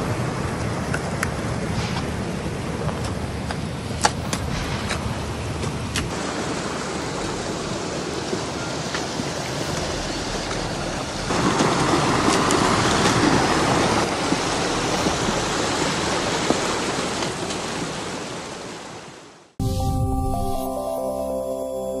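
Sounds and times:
outdoor rushing noise: 0.0s - 17.0s
synthesized outro music: 19.6s - 22.0s.

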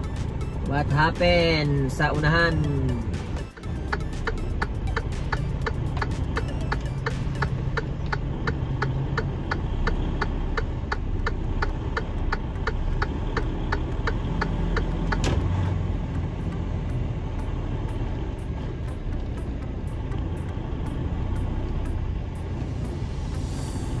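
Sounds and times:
truck engine droning: 0.0s - 24.0s
indicator clicking: 1.6s - 15.3s.

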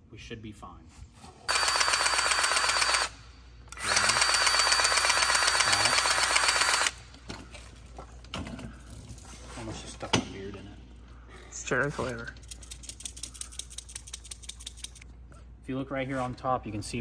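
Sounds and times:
powered grease gun chattering: 1.5s - 7.0s.

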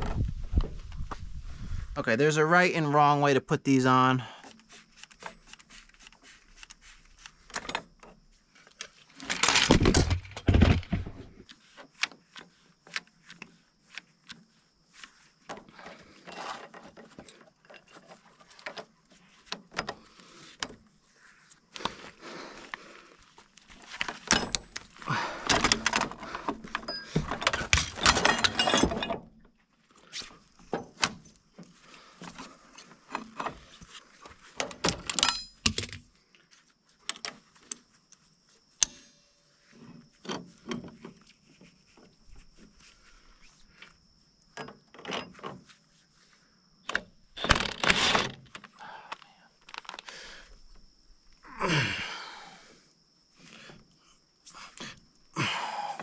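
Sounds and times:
metal clinking and clattering: 24.2s - 29.3s, 34.9s - 36.0s.

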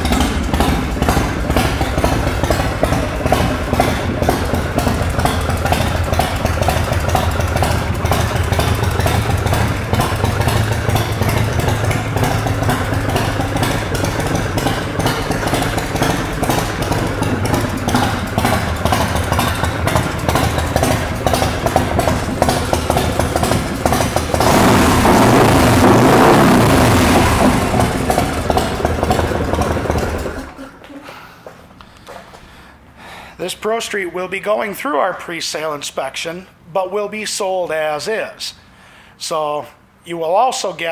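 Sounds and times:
motorcycle engine idling: 0.0s - 30.8s.

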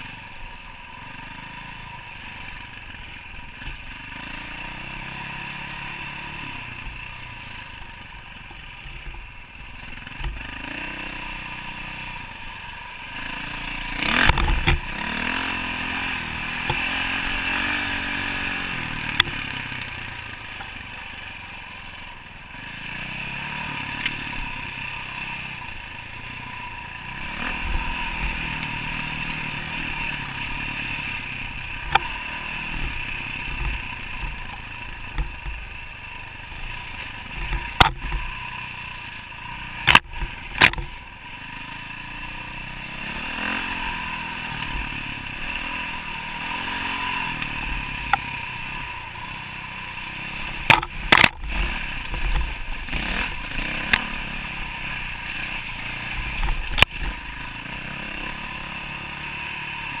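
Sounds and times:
dirt bike engine: 0.0s - 60.0s.

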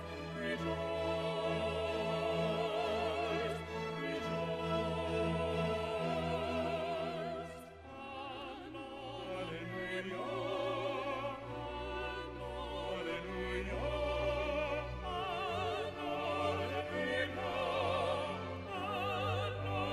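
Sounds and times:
operatic voice singing: 0.0s - 19.9s
orchestral accompaniment: 0.0s - 19.9s.

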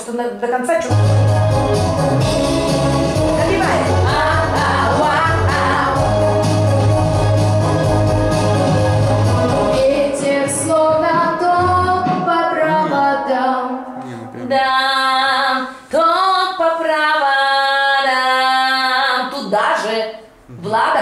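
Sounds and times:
girl singing into a microphone: 9.8s - 19.3s.

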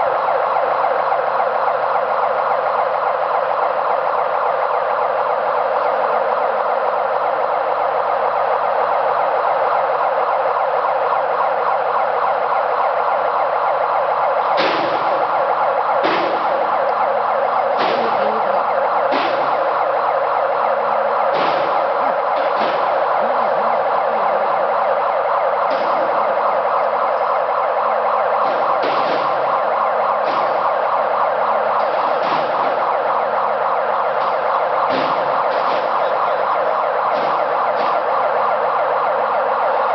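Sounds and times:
crane warning siren wailing: 0.0s - 39.9s.

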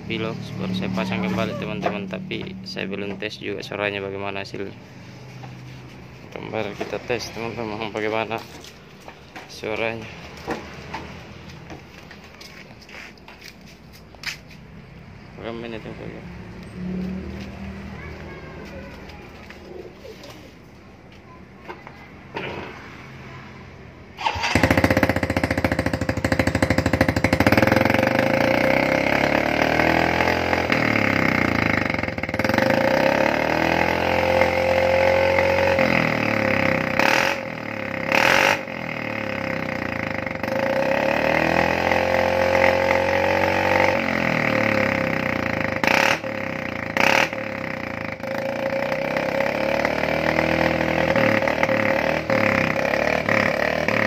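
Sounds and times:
motorcycle engine revving: 0.0s - 12.1s, 15.4s - 20.1s, 24.2s - 54.0s
sharp exhaust cracks: 24.2s - 54.0s.

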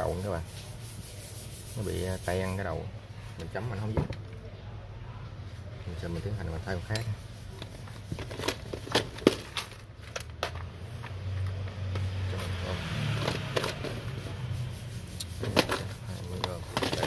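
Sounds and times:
plastic box scraping and rattling: 7.6s - 10.6s, 12.3s - 14.4s, 15.4s - 17.0s.

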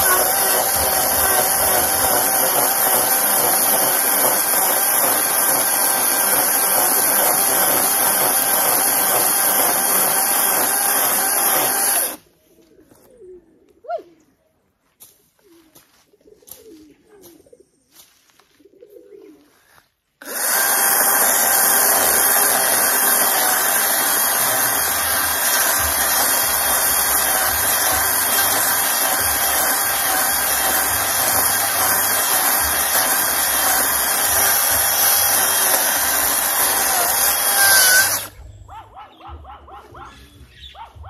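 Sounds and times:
chainsaw cutting tree trunk: 0.0s - 12.2s, 20.2s - 38.4s
dove cooing: 12.6s - 14.4s, 15.4s - 17.8s, 18.6s - 19.6s.

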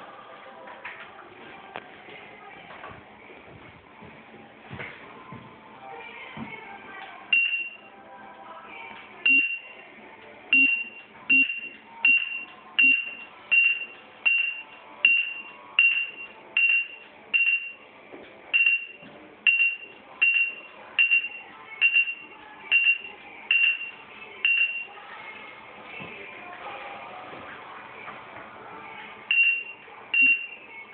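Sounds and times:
short high beeps: 10.6s - 17.8s.

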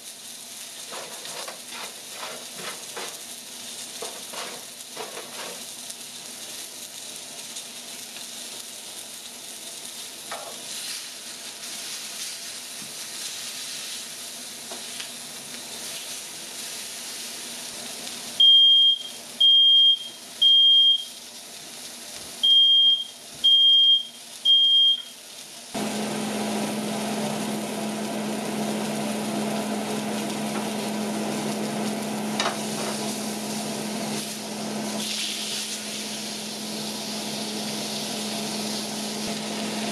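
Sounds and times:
chicken sizzling in a skillet: 0.0s - 39.9s
vent fan humming: 0.0s - 39.9s
smoke alarm beeping: 18.4s - 21.2s, 22.4s - 25.2s.

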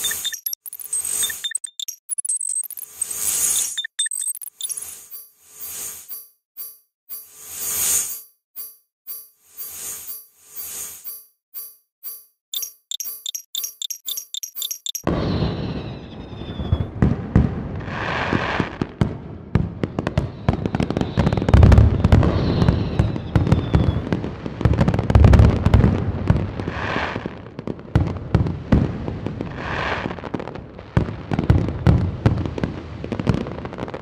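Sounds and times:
whistling rockets: 15.0s - 18.9s, 20.0s - 24.3s
fireworks booms: 15.1s - 34.0s.

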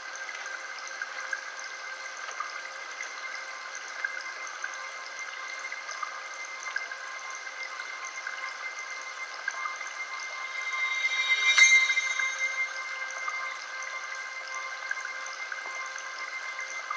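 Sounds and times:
steady high tones: 9.2s - 14.0s.

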